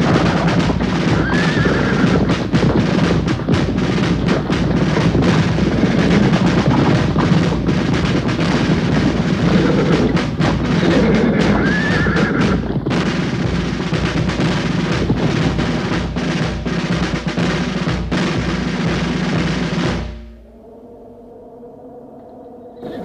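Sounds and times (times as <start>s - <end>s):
horse whinnying: 0.0s - 3.4s, 8.7s - 13.0s
horse hoofbeats: 0.0s - 20.2s
orchestral film music with drums: 0.0s - 20.4s.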